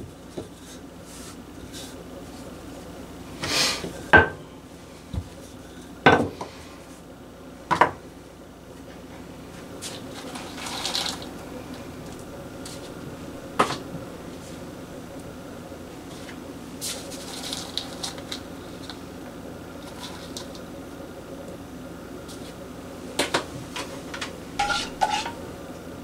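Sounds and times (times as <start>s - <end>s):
spoon scraping a saucepan: 24.6s - 25.4s.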